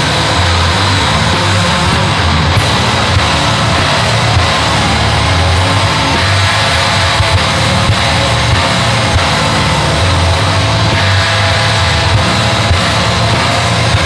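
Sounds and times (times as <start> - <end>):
distorted industrial noise music: 0.0 - 14.0
held low bass notes: 0.0 - 14.0.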